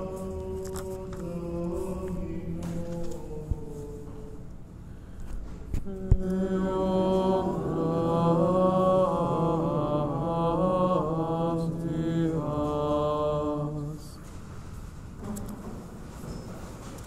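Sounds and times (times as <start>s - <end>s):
man chanting: 0.0s - 4.4s.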